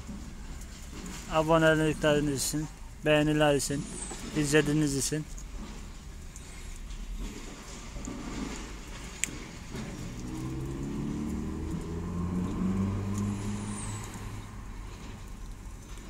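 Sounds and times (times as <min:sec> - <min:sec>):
vehicle engine passing by: 0:09.3 - 0:16.0.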